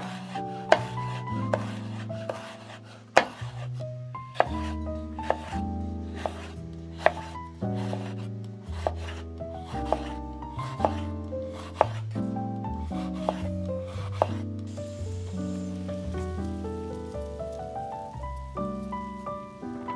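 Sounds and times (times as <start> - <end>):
slow background music: 0.0 - 19.9
knife chopping on cutting board: 0.7 - 3.6, 4.4 - 5.5, 6.2 - 12.0, 13.0 - 14.4.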